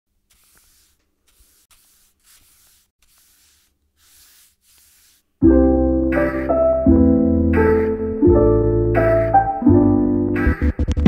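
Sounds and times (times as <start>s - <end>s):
short scratchy strokes: 0.1s - 5.4s
music: 5.4s - 11.0s.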